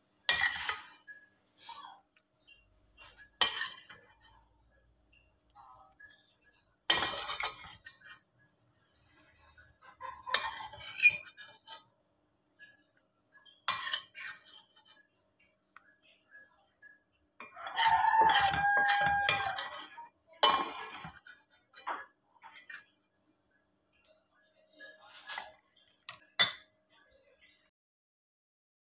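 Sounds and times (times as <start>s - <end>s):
metal spoon clinking on bowl: 3.2s - 4.4s, 17.4s - 21.2s.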